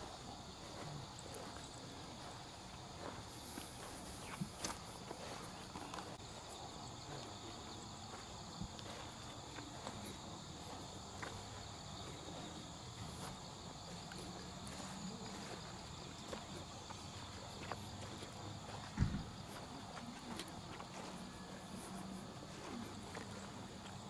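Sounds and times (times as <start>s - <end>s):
insects chirping: 0.0s - 24.0s
dull thump: 18.9s - 19.3s.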